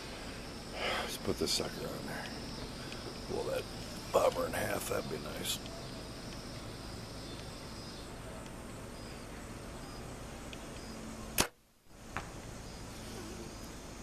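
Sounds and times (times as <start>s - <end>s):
bowstring snapping: 10.5s - 11.6s
arrow hitting foam target: 11.4s - 11.6s.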